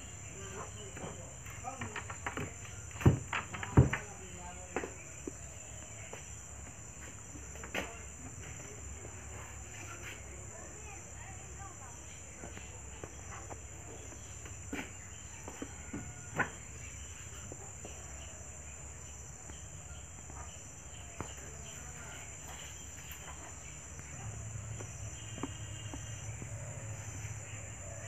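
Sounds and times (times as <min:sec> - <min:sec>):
wooden doors clicking and knocking: 0:00.9 - 0:04.3.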